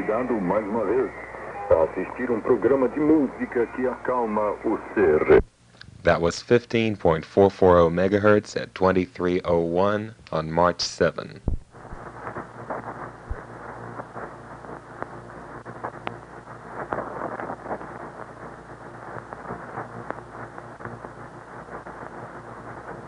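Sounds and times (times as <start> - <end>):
shortwave radio static hiss: 0.0 - 23.0
static crackles and pops: 0.0 - 23.0.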